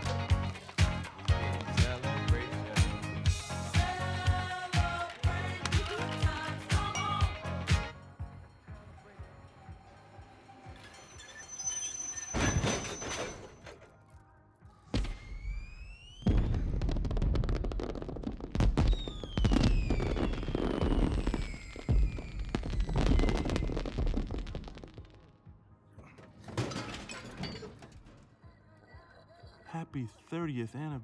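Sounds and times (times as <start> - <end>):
firework rising whistle: 10.6 - 13.6, 15.0 - 17.4, 18.8 - 24.8
falling whistles: 10.7 - 13.6, 15.0 - 16.8, 18.9 - 24.1
firework bangs: 15.0 - 25.2
firework crackle: 15.0 - 25.3.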